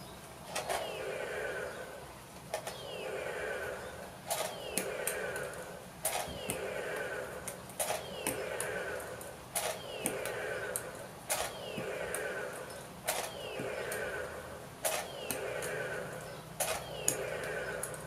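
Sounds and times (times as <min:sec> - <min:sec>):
toy launcher clicking: 0:04.2 - 0:14.2, 0:14.8 - 0:18.0.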